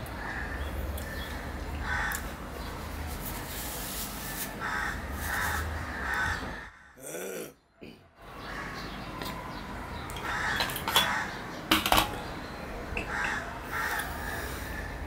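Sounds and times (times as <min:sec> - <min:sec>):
steel dishes clinking: 0:10.6 - 0:12.2.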